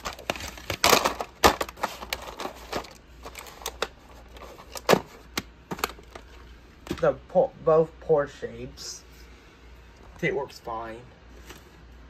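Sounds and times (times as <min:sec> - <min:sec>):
plastic rustle: 0:00.0 - 0:06.4
plastic cases clicking and knocking: 0:00.0 - 0:07.1.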